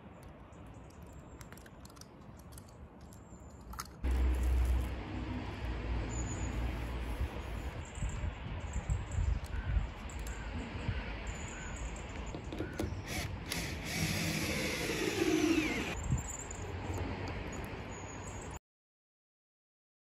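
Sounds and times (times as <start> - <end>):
cordless drill driving fastener: 12.5 - 16.0.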